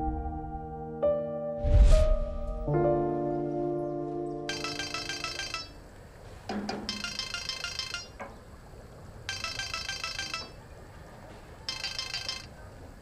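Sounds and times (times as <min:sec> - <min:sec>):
phone melodic ringtone: 0:04.5 - 0:05.8, 0:06.9 - 0:08.2, 0:09.3 - 0:10.6, 0:11.7 - 0:12.5.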